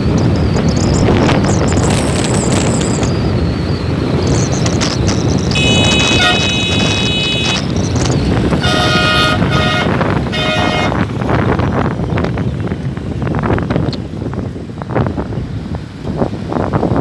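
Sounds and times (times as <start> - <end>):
wind rumble on microphone: 0.0 - 17.0
vehicle horns honking: 5.5 - 11.1.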